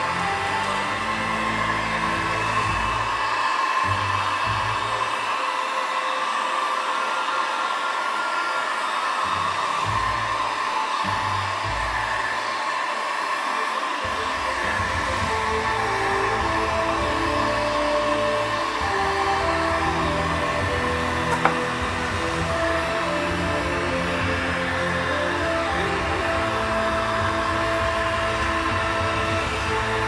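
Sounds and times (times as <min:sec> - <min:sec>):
background music with bass: 0:14.1 - 0:30.0.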